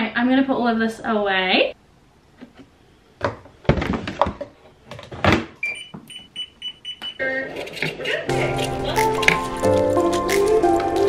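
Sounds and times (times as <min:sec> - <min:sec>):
washing machine beeps: 0:05.6 - 0:07.3.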